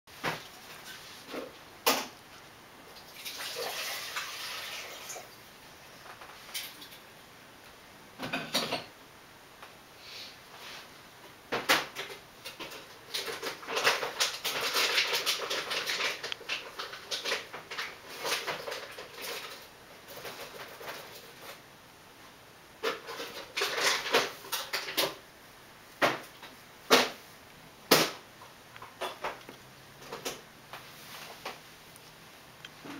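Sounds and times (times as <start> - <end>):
kittens rustling and scratching: 0.1 - 2.5, 10.5 - 25.2, 28.4 - 32.9.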